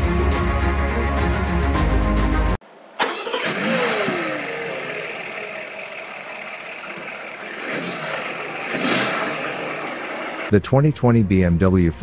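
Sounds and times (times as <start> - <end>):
car engine revving and idling: 3.0 - 10.5.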